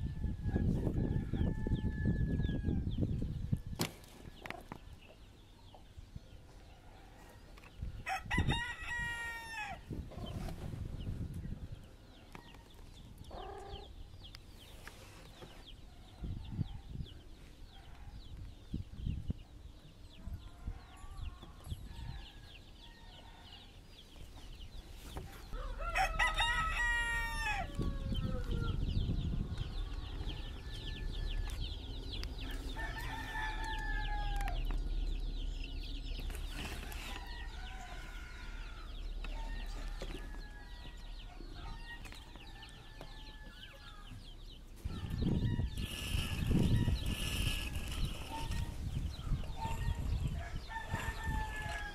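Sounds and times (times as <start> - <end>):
rooster crowing: 8.1 - 9.8, 25.5 - 31.7, 32.4 - 34.8, 36.7 - 44.2, 49.5 - 51.9
farmyard fowl calls: 25.2 - 28.8
low rumble: 27.8 - 41.6.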